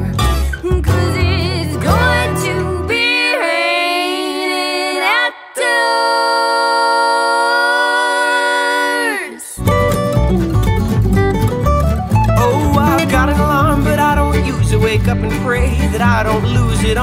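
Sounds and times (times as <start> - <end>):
singers in harmony: 1.0 - 9.6
string band playing: 9.6 - 17.0.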